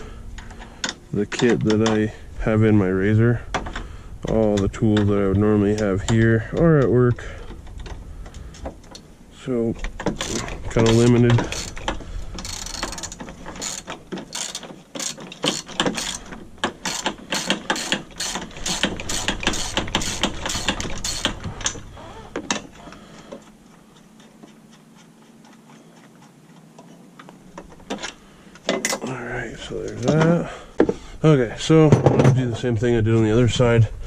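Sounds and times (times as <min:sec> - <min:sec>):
socket ratchet clicking: 0:10.2 - 0:21.8.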